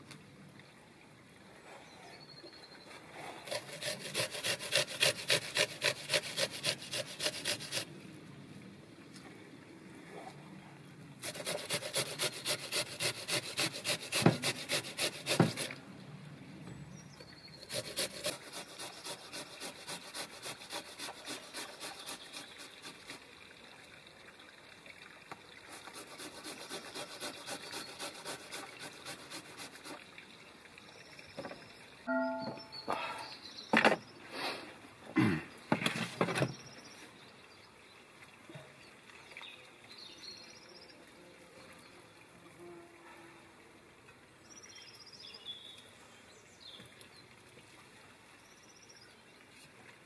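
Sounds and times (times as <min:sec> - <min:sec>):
potato rasping on metal grater: 0:03.5 - 0:07.8, 0:11.2 - 0:15.7, 0:17.7 - 0:23.2, 0:25.8 - 0:30.0.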